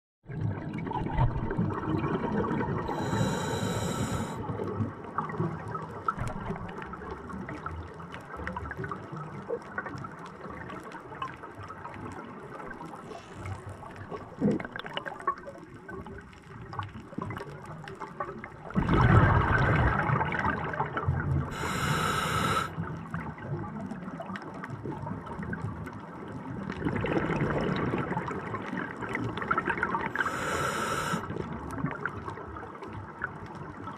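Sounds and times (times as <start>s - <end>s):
bubbling exhales: 0.3s - 4.6s, 21.4s - 22.8s, 29.4s - 31.6s
regulator hissing inhale: 2.9s - 4.4s, 21.5s - 22.7s, 30.2s - 31.4s.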